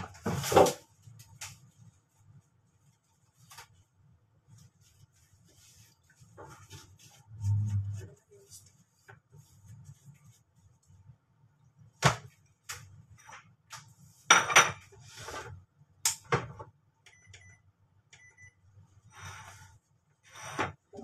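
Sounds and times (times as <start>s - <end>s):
dishes knocking and clinking: 14.3s - 15.0s.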